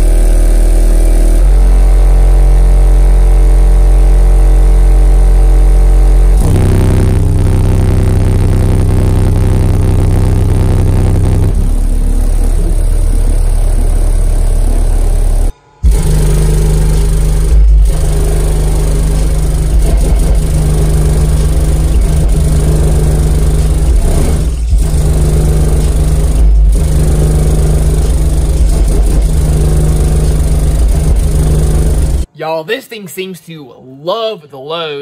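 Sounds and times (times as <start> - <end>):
subwoofer playing deep bass music: 0.0 - 32.3.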